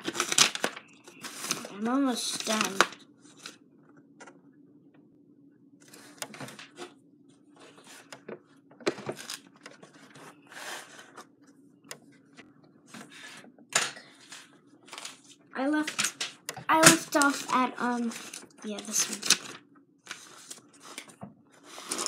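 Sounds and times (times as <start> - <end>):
paper pages rustling: 0.0 - 3.6, 7.6 - 11.4, 14.1 - 22.0
faint steady hum: 0.0 - 22.0.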